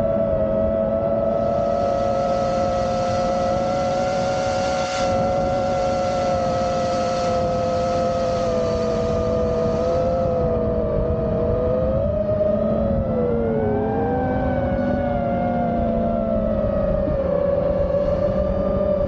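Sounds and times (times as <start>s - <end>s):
quadcopter motors whining: 1.2s - 12.1s
prop wash and wind hiss: 1.3s - 10.4s.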